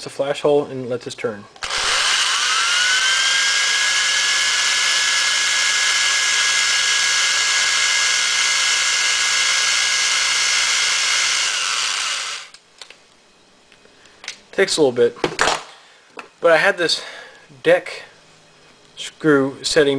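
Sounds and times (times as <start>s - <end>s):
electric drill whining: 1.6s - 12.6s.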